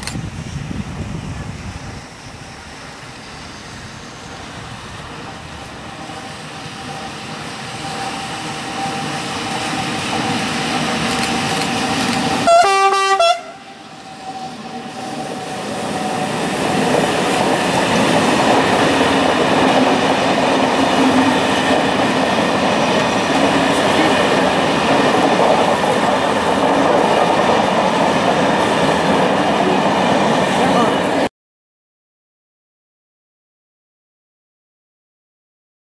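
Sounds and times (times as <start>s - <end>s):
train passing: 0.0s - 31.3s
wheels rumbling on rail: 0.0s - 31.3s
train horn blast: 12.4s - 14.6s.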